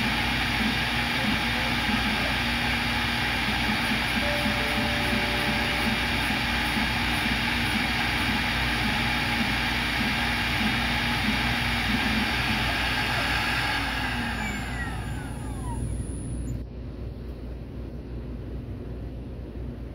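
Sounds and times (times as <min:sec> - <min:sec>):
router spindle whine: 0:00.0 - 0:16.6
spindle spinning down: 0:03.8 - 0:16.6
short low repeating tone: 0:04.2 - 0:06.6.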